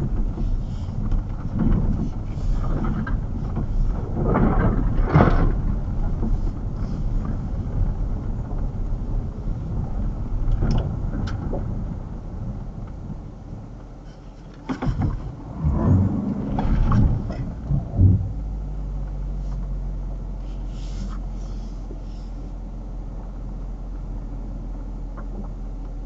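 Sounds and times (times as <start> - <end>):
car engine and road rumble: 0.0 - 26.0
bumps: 14.6 - 18.6.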